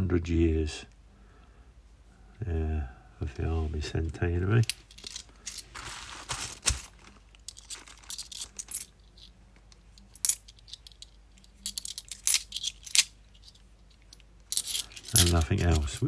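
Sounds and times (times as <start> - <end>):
coins clinking: 7.4 - 9.3, 9.9 - 16.0.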